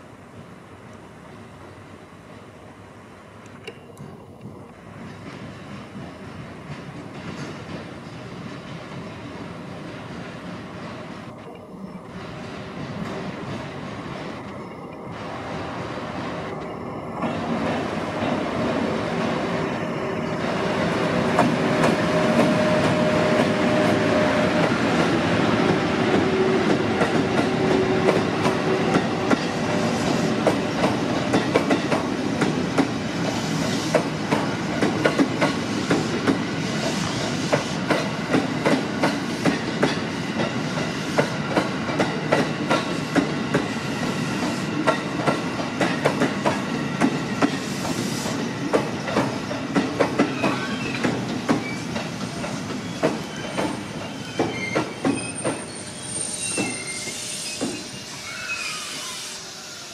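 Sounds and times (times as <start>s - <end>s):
train rumble: 3.4s - 58.6s
train wheels clacking over rail joints: 5.1s - 9.1s, 21.2s - 43.8s, 44.4s - 55.8s.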